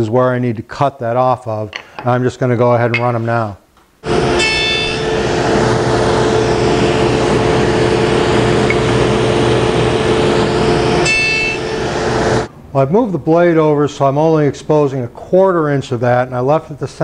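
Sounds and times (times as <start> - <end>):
table saw cutting wood: 4.0 - 12.5.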